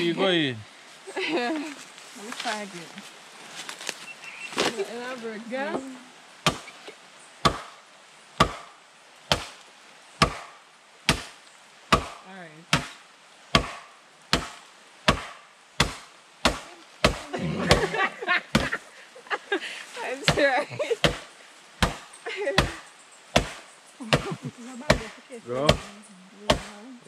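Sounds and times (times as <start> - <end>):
machete chopping bamboo: 6.4 - 6.8, 7.4 - 7.8, 8.4 - 8.7, 9.3 - 9.6, 10.2 - 10.5, 11.1 - 17.2, 21.0 - 21.2, 21.8 - 22.0, 23.4 - 24.3.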